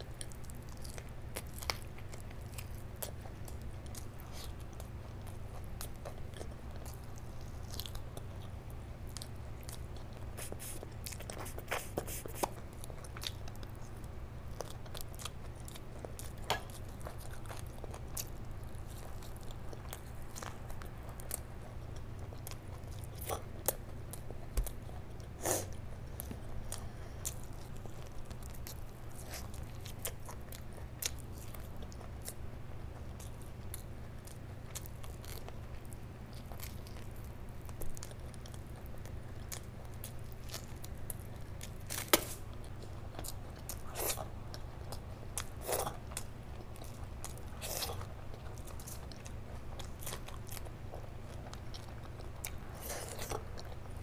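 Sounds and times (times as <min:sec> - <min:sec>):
person chewing: 0:00.1 - 0:54.0.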